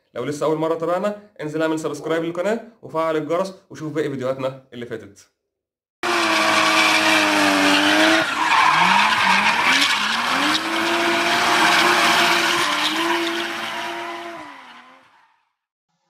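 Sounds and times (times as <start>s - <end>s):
race car engine revving: 6.0s - 15.2s
tyre screech: 6.1s - 15.3s.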